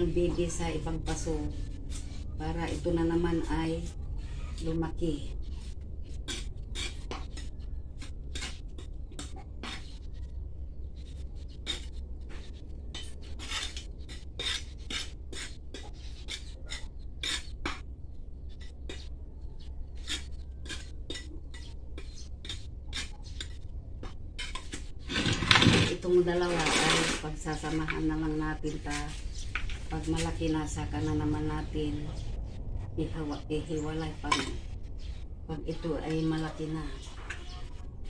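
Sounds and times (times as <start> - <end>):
low hum: 0.0 - 38.0
soil scraped in a pot: 4.6 - 10.3, 10.9 - 17.8, 19.8 - 31.0.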